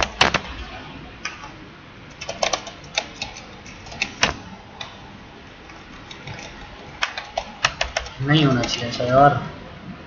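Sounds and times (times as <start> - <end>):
keyboard key clicks: 2.1 - 4.9, 6.1 - 8.8.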